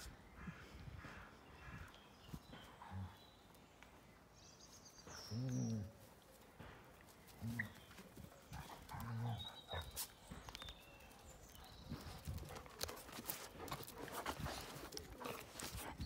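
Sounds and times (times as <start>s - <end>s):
paws scuffling on grass: 6.0s - 16.0s
dogs play-growling: 8.5s - 10.0s, 12.4s - 16.0s.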